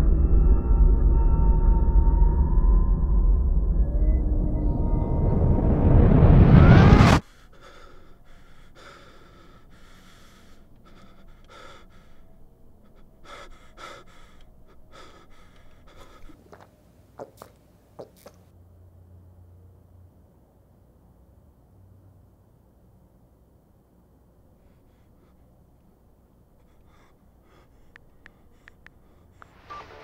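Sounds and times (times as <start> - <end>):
man breathing hard: 7.1 - 16.6, 24.5 - 29.6
man gulping drink: 16.3 - 18.4.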